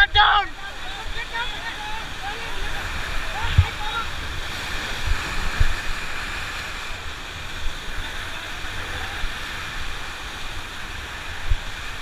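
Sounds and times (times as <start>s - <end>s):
whitewater rushing: 0.0s - 12.0s.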